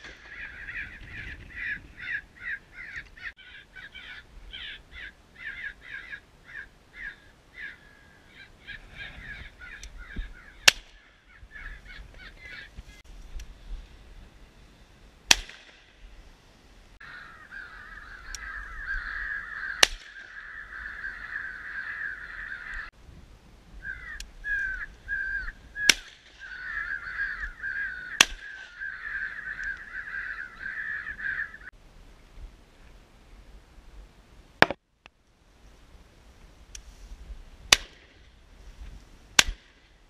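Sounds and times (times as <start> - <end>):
crows cawing: 0.1 - 12.8, 17.0 - 22.9, 23.8 - 25.6, 26.4 - 31.7
shotgun shots: 15.3 - 15.8.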